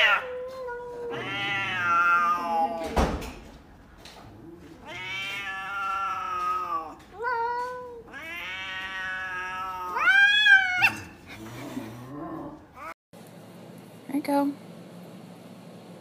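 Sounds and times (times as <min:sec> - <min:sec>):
cat yowling: 0:00.0 - 0:02.8, 0:04.8 - 0:11.2.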